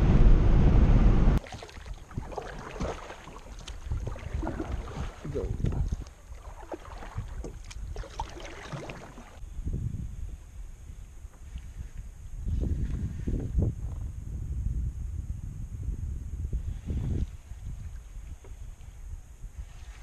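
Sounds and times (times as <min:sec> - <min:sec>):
water splashing: 0:01.4 - 0:09.4.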